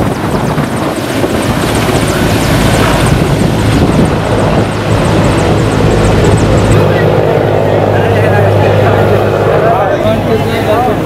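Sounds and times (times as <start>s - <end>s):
helicopter engine noise: 0.0s - 11.0s
helicopter rotor chopping: 0.0s - 11.0s.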